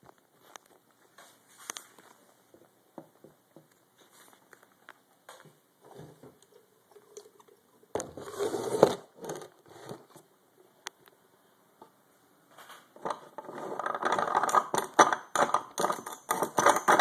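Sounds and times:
coffee grinder crunching beans: 13.2s - 17.0s.

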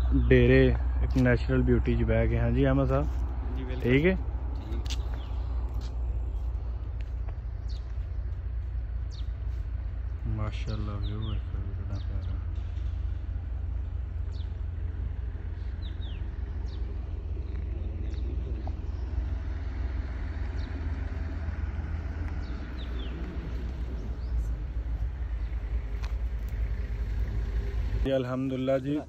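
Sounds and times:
low rumble: 0.0s - 28.1s
car approaching: 0.0s - 29.0s
high falling bird chirps: 4.8s - 28.0s.

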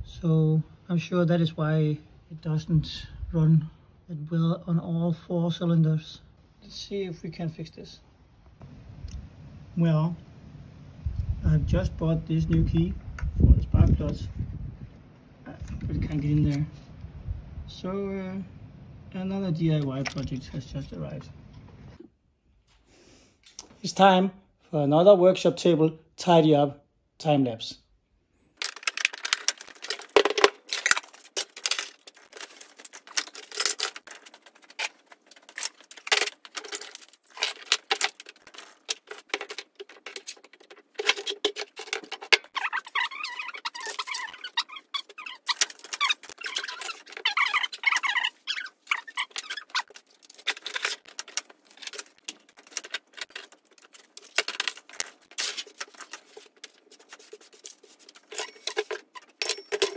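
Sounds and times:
tools clattering on a workbench: 19.9s - 20.5s, 28.6s - 48.3s, 48.9s - 59.9s
high wavering squeaks: 42.4s - 50.0s.

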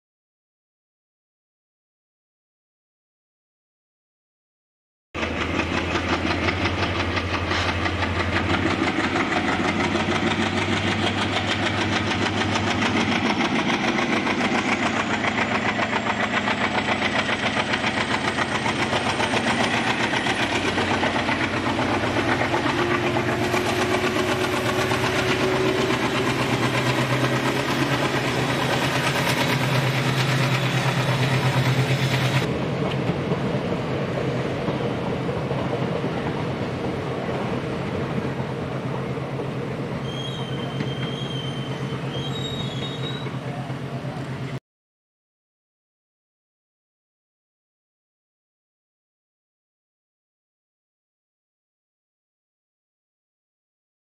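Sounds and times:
diesel locomotive engine throbbing: 5.2s - 44.6s.

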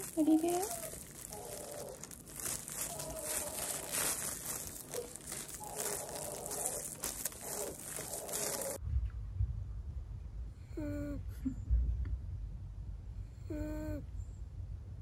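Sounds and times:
plastic yarn crinkling: 0.0s - 8.8s.

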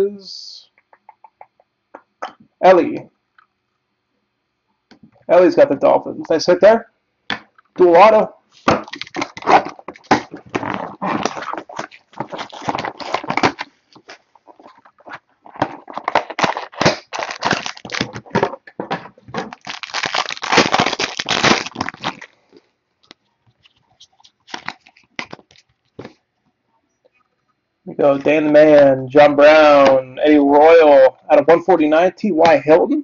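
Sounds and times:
foil wrapper crackling: 8.6s - 18.5s, 19.4s - 26.1s
cards clicking and rustling: 8.6s - 22.3s, 23.1s - 26.2s.

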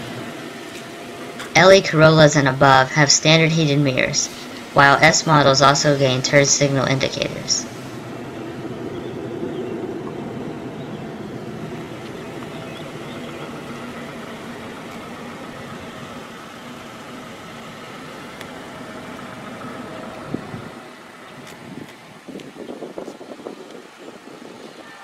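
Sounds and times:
vehicle engine running: 0.0s - 23.2s.

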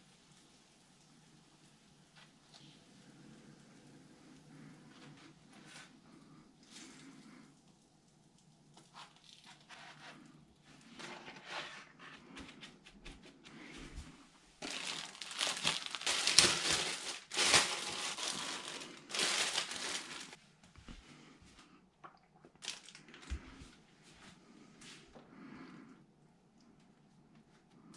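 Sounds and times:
plastic bag crinkling: 14.6s - 20.4s, 22.5s - 23.4s.

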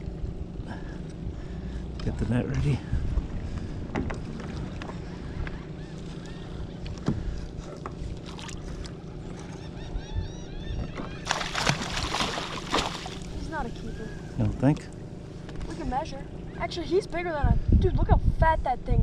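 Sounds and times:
water noise around a kayak: 0.0s - 9.8s, 10.8s - 14.6s
wind: 0.0s - 19.0s
fish splashing in a net: 11.2s - 13.4s.

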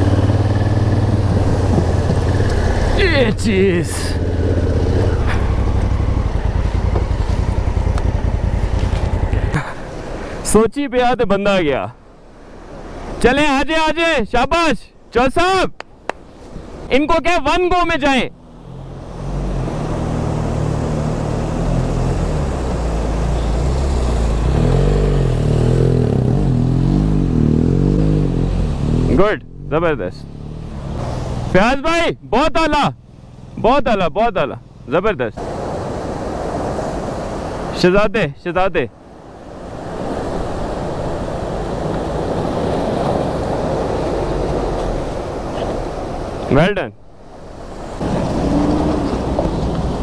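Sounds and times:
motorcycle engine running: 0.0s - 9.8s
motorcycle engine revving: 0.0s - 10.2s, 18.3s - 31.6s, 47.3s - 50.0s.

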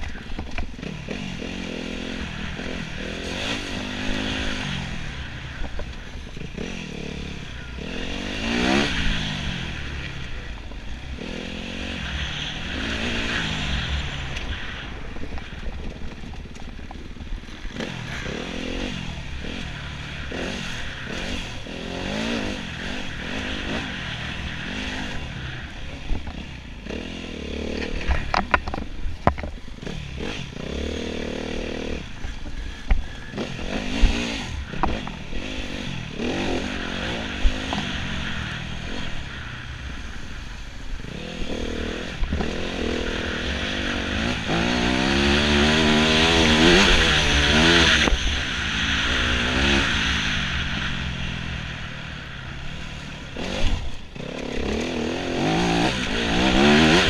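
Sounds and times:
motorcycle engine revving: 0.0s - 57.0s
sharp knocks and clatter: 27.8s - 29.6s.

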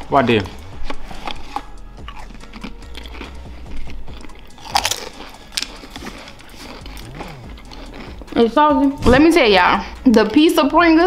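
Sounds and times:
crisps crunching when chewed: 0.0s - 8.6s.

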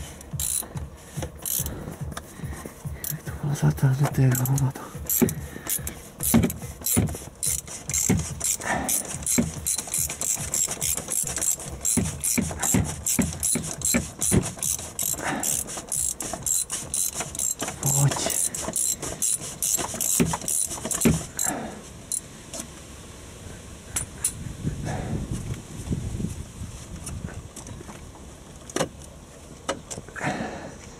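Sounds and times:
ratchet wrench clicking: 0.0s - 2.2s, 3.0s - 3.3s, 4.1s - 22.3s.

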